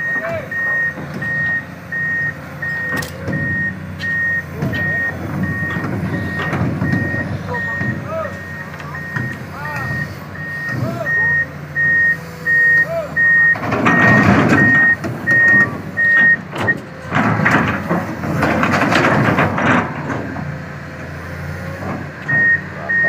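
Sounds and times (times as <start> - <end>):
travel alarm beeping: 0.0 - 16.8, 22.3 - 23.0
excavator engine noise: 0.0 - 23.0.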